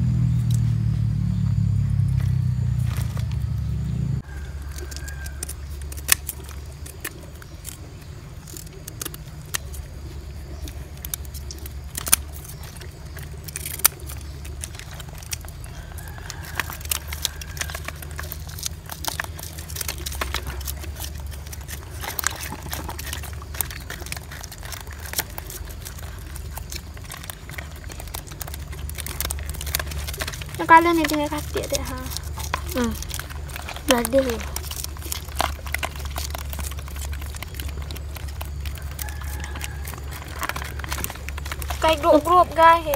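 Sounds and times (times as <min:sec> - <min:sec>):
low rumble: 0:00.0 - 0:04.6
scissors snipping: 0:10.6 - 0:15.4.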